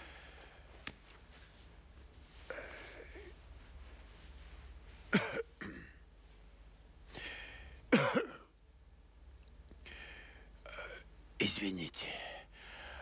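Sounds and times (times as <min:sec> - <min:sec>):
man coughing: 0:05.2 - 0:06.0, 0:07.9 - 0:08.5.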